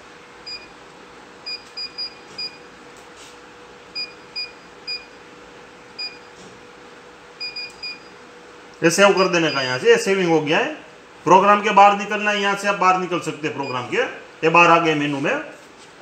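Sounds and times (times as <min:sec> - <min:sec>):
vending machine button beeps: 0:01.4 - 0:02.7, 0:04.0 - 0:05.2, 0:06.0 - 0:06.3, 0:07.4 - 0:08.2, 0:09.1 - 0:09.8, 0:13.6 - 0:13.9.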